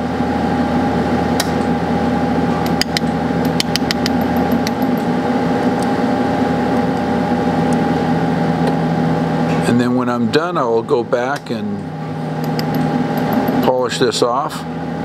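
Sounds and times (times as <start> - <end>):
machine hum: 0.0 - 15.0.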